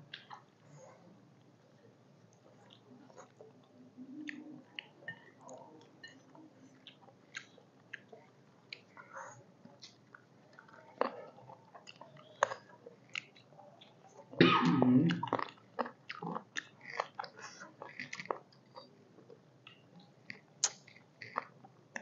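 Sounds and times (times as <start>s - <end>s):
chewing and lip smacking: 0.1s - 0.6s, 2.3s - 9.1s, 9.7s - 14.4s, 15.1s - 22.0s
person coughing: 14.4s - 15.2s.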